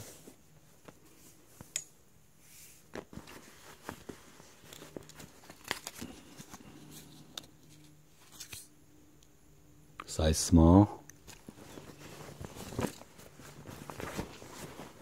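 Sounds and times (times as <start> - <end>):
fabric rustling: 0.0 - 1.7, 2.4 - 8.7, 11.2 - 15.0.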